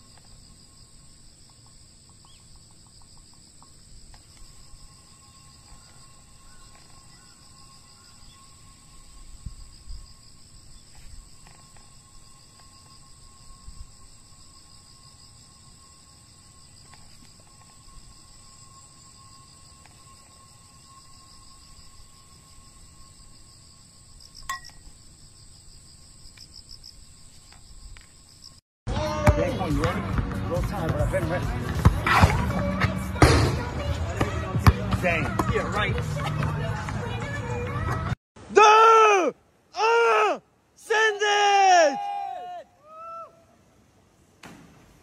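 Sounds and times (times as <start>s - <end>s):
insects trilling: 0.0s - 28.6s.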